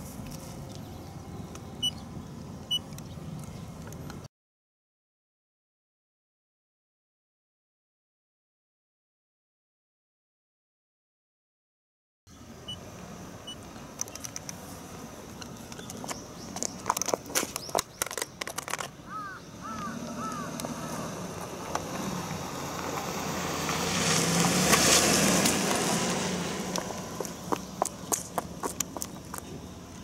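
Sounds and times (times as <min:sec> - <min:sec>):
car tyres rolling on pavement: 0:12.8 - 0:30.0
device clattering on concrete: 0:15.7 - 0:19.0.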